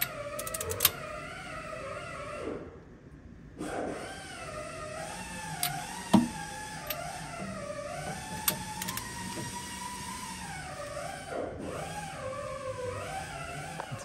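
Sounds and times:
torque wrench clicking: 0.0 - 1.0, 8.4 - 9.1.

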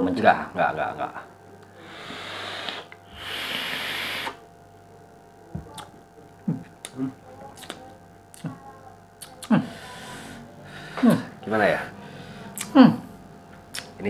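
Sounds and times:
faint steady hum: 0.0 - 14.0
mouth clicks and lip smacks: 5.7 - 5.9, 6.7 - 7.0, 7.6 - 8.5, 9.2 - 9.5, 13.7 - 14.0.

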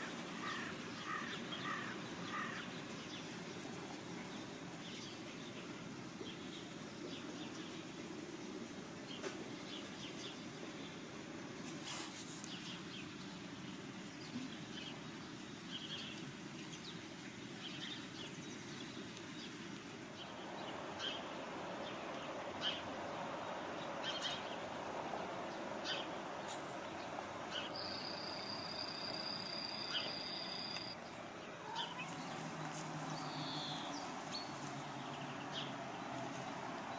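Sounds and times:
small birds chirping: 12.0 - 36.9.

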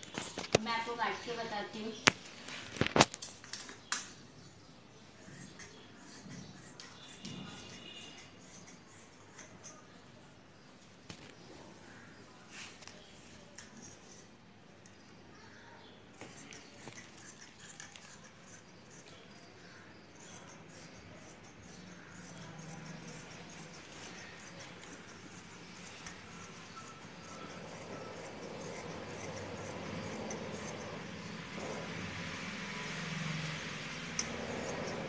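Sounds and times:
scissors snipping fabric: 5.3 - 9.9, 16.2 - 35.0.

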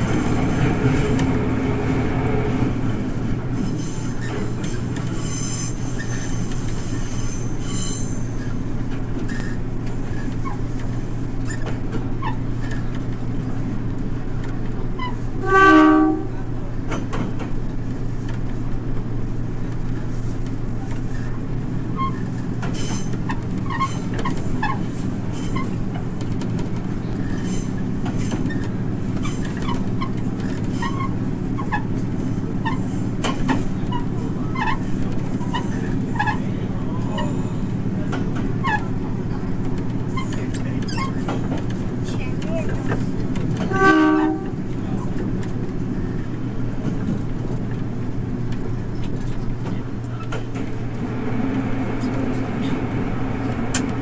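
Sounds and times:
diesel railcar engine drone: 0.0 - 54.0
high wheel squeal: 3.6 - 8.6
train horn: 15.4 - 16.5, 43.6 - 44.6
wheels clicking on rails: 16.9 - 54.0.

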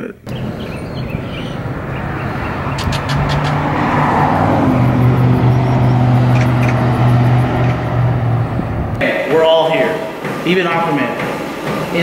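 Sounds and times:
car engine running: 0.2 - 9.0.

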